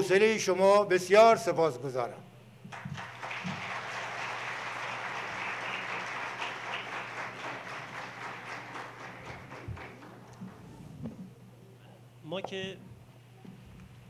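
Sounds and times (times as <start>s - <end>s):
audience applauding: 2.7s - 10.8s.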